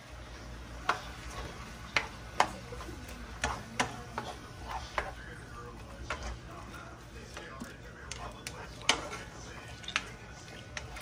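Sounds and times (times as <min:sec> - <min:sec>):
spoon stirring vegetables: 0:00.0 - 0:11.0
spoon knocking against pan: 0:03.4 - 0:05.2.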